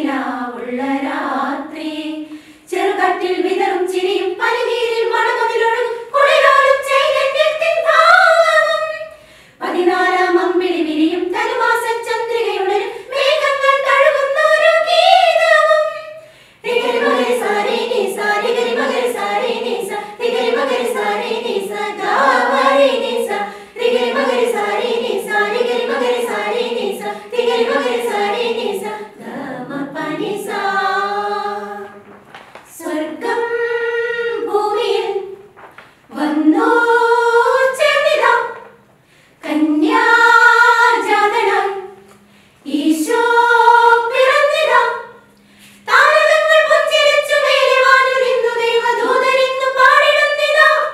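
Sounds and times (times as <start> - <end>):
women's choir singing a carol: 0.0 - 50.9.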